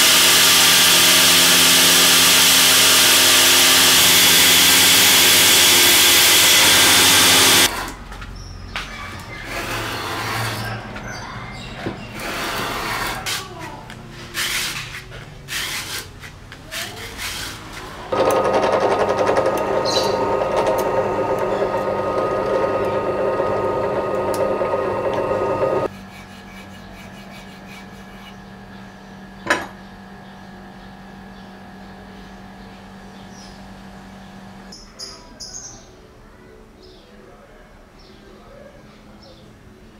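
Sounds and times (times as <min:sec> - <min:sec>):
drill press boring into wood: 0:00.0 - 0:08.0, 0:12.2 - 0:13.2, 0:18.1 - 0:25.9
steady hum: 0:18.2 - 0:34.7
wood rubbed on sandpaper: 0:25.9 - 0:28.4.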